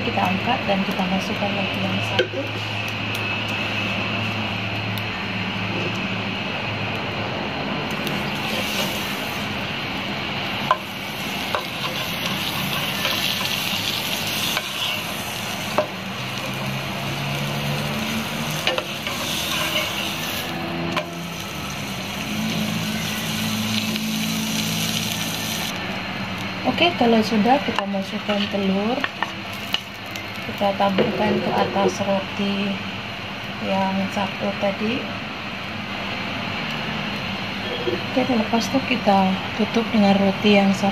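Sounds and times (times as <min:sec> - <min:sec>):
bread sizzling in butter: 0:08.0 - 0:25.8.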